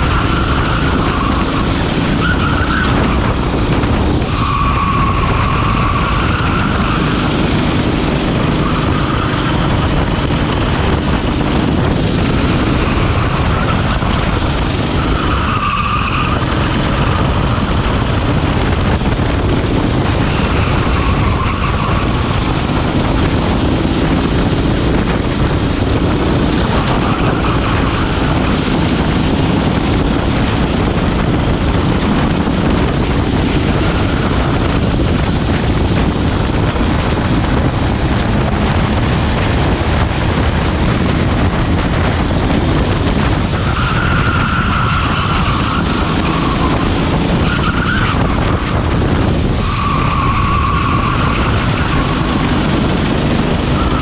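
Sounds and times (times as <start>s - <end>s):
kart engine racing: 0.0s - 54.0s
tyres squealing: 43.6s - 48.6s, 49.6s - 52.5s.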